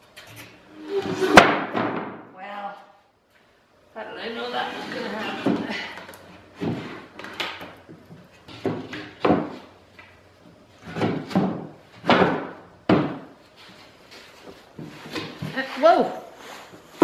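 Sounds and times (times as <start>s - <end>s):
wooden boards knocking: 1.4s - 2.2s, 8.5s - 9.6s, 10.9s - 13.3s.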